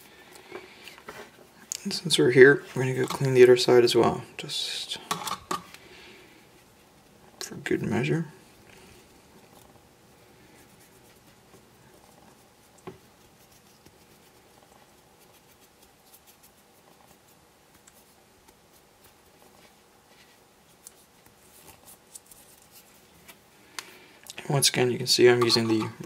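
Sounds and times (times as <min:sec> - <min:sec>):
cotton swab scratching: 0:10.5 - 0:23.0.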